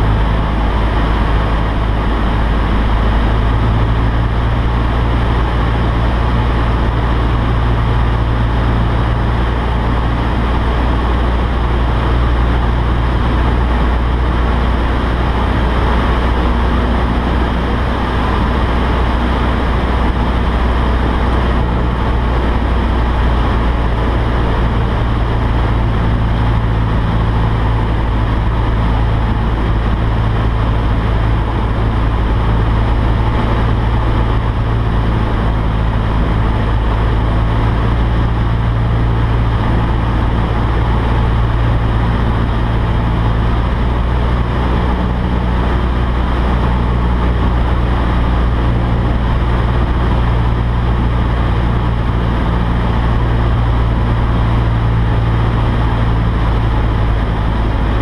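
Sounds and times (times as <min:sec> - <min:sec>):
light aircraft engine droning: 0:00.0 - 0:58.0.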